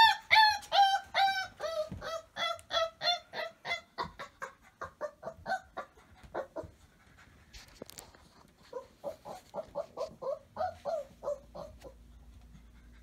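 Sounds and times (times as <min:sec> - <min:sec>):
puppies squeaking: 0:00.0 - 0:06.7, 0:08.7 - 0:12.1.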